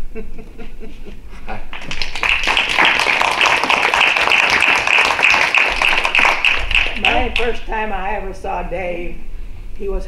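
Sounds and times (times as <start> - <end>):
people applauding: 1.7 - 7.6.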